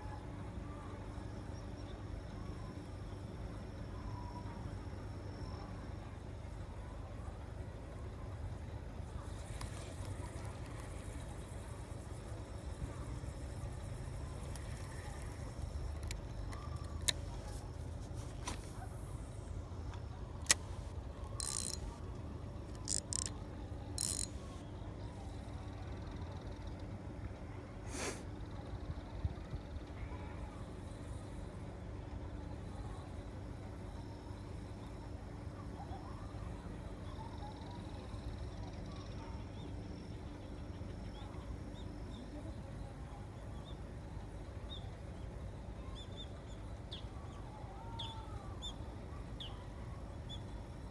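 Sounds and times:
faint bird chirps: 0:00.0 - 0:17.9, 0:32.4 - 0:50.9
fishing reel clicks: 0:20.4 - 0:20.7, 0:21.3 - 0:22.0, 0:22.6 - 0:24.5
fishing reel whirring: 0:21.3 - 0:24.5.

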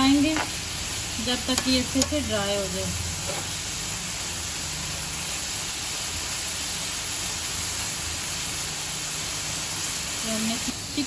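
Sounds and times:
chicken sizzling in a frying pan: 0:00.0 - 0:11.0.

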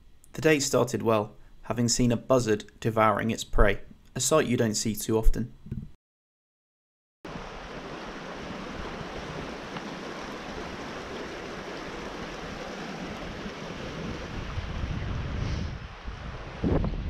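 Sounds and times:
stream rushing over rocks: 0:07.3 - 0:15.0
wind buffeting microphone: 0:07.8 - 0:17.0.

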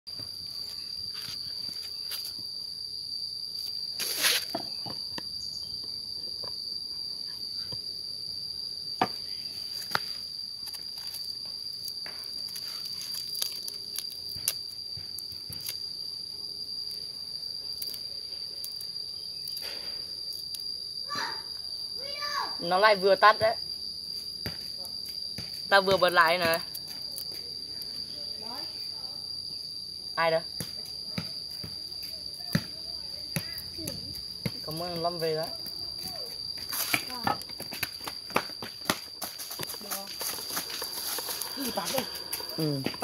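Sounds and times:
insects trilling: 0:00.1 - 0:43.0.

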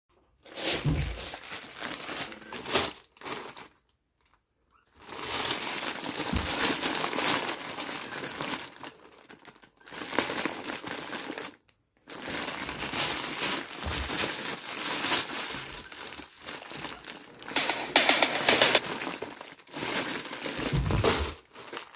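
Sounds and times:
plastic bag crinkling: 0:00.4 - 0:04.3, 0:05.0 - 0:21.9
plastic bricks clicking together: 0:17.6 - 0:18.8.

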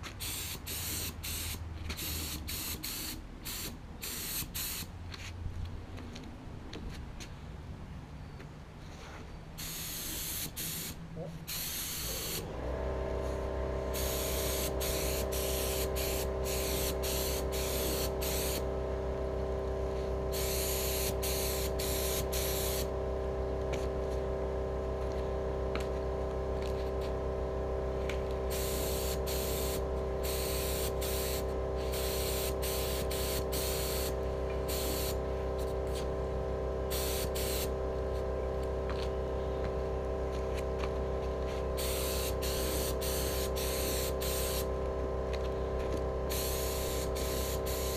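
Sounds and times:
air compressor humming: 0:00.0 - 0:04.9, 0:09.6 - 0:47.9
spray gun hissing: 0:00.2 - 0:04.9, 0:09.6 - 0:12.5, 0:13.2 - 0:18.7, 0:19.9 - 0:22.9, 0:28.5 - 0:35.2, 0:36.9 - 0:37.8, 0:41.8 - 0:44.7, 0:46.3 - 0:47.9.

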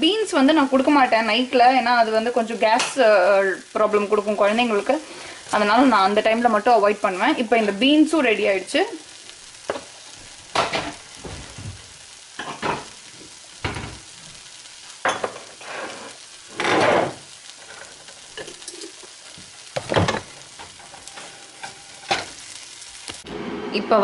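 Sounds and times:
beans sizzling in a frying pan: 0:00.0 - 0:24.0
spatula scraping a pan: 0:15.2 - 0:19.2, 0:20.1 - 0:22.4.

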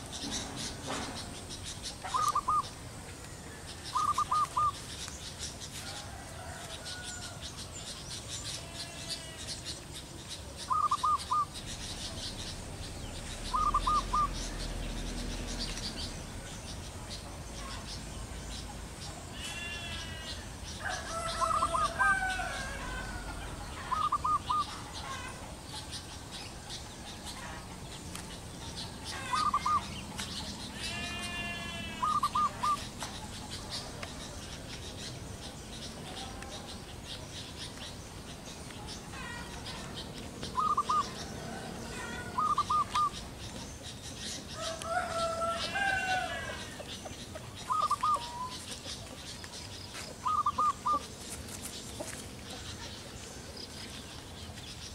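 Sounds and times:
doves cooing: 0:00.0 - 0:04.9, 0:10.5 - 0:16.9, 0:17.6 - 0:34.3, 0:39.2 - 0:43.4, 0:44.5 - 0:49.2, 0:50.1 - 0:51.1
background birds calling: 0:00.0 - 0:54.9.

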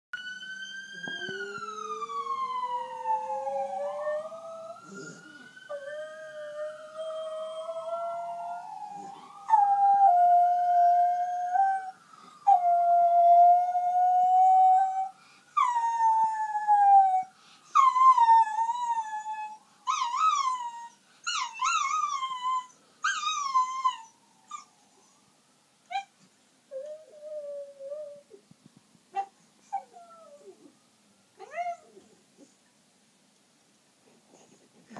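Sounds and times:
faint siren: 0:00.1 - 0:28.4, 0:29.2 - 0:32.6
dog howling: 0:00.9 - 0:11.9.

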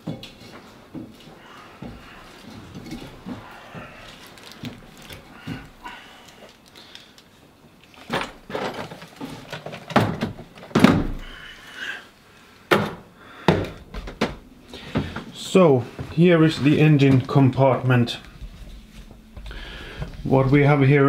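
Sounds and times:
footsteps climbing a ladder: 0:00.0 - 0:06.0, 0:12.7 - 0:20.8
plastic toolbox set down: 0:08.0 - 0:11.3.

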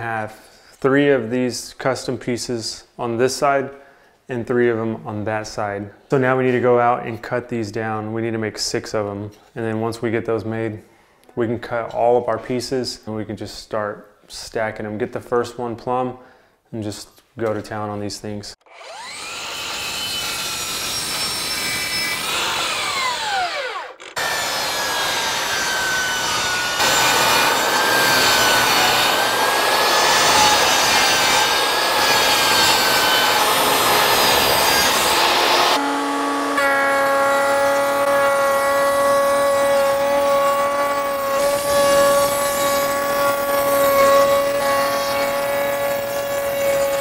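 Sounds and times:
saw blade cutting wood: 0:18.7 - 0:47.0
saw blade winding down: 0:18.7 - 0:47.0
table saw motor whine: 0:18.7 - 0:47.0.

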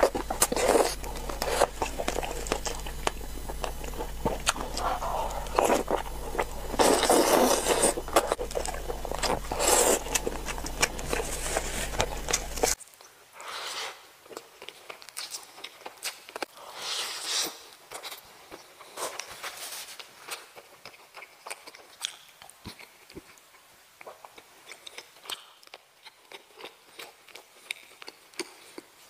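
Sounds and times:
low steady hum: 0:00.0 - 0:12.8
wet chewing and smacking: 0:00.0 - 0:12.8, 0:20.2 - 0:29.0.

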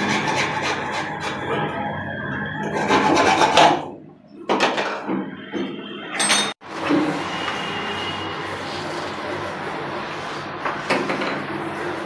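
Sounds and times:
hacksaw sawing through pipe: 0:00.0 - 0:01.5, 0:02.6 - 0:03.9.

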